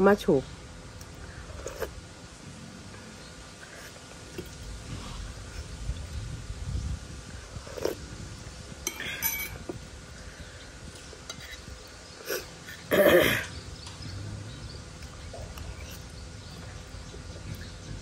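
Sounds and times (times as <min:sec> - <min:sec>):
mouth eating sound: 0:01.3 - 0:02.0, 0:07.4 - 0:08.2, 0:11.4 - 0:18.0
cutlery clinking on dishes: 0:08.9 - 0:09.6.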